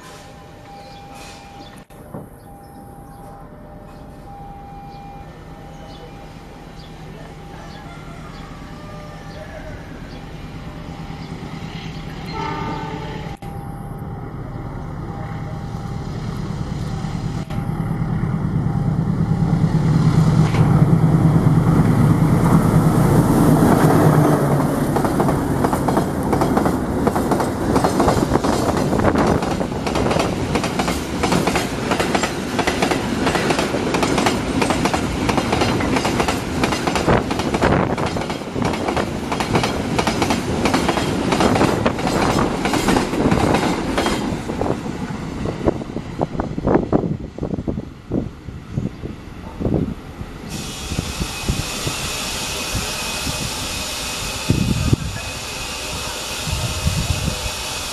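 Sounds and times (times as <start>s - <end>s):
locomotive engine rumble: 0.0s - 57.6s
train wheels clickety-clack: 23.8s - 44.4s.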